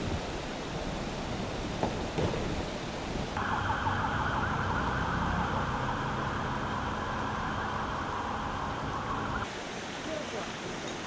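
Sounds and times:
emergency siren warbling: 3.4 - 9.5.

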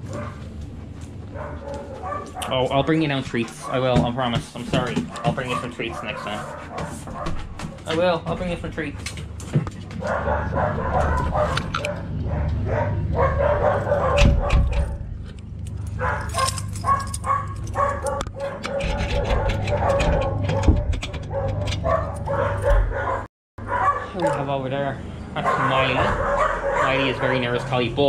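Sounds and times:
metal kennel door clanking: 10.0 - 15.1, 15.8 - 23.2.

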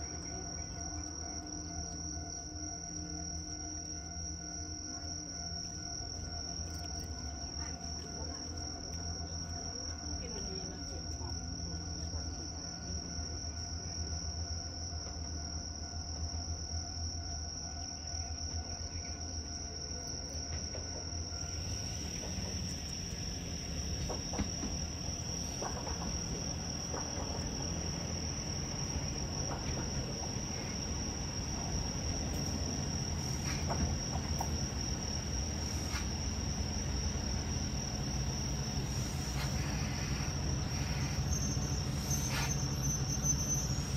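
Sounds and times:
crickets chirring: 0.0 - 43.9
diesel railcar approaching: 0.0 - 43.9.

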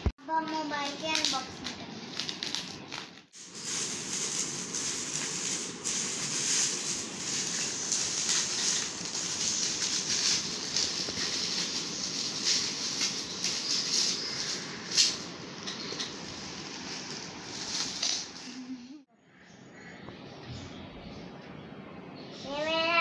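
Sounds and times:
bubble wrap crinkling: 0.9 - 18.7.

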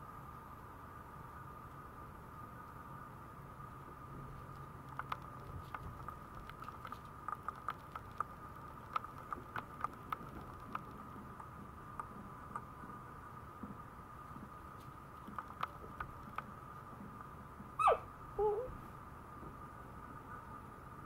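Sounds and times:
puppy teeth clicking on plastic: 4.8 - 11.0.

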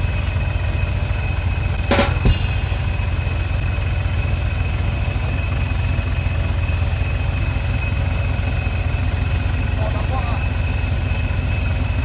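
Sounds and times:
pickup engine idling: 0.0 - 12.0.

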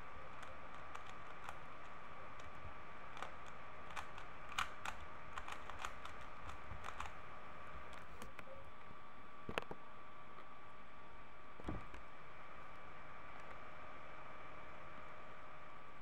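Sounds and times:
faint high hum: 0.0 - 16.0
puzzle cube plastic clicking: 0.3 - 7.2.

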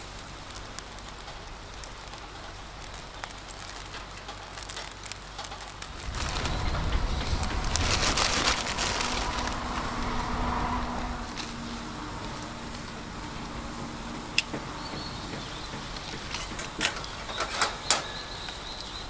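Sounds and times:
noodles sizzling in a frying pan: 0.0 - 14.4
wood fire crackling: 0.0 - 19.0.

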